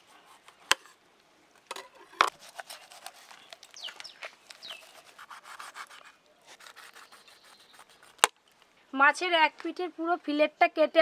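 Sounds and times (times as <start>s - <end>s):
knife scraping fish backbone: 1.9s - 3.8s, 4.4s - 8.3s.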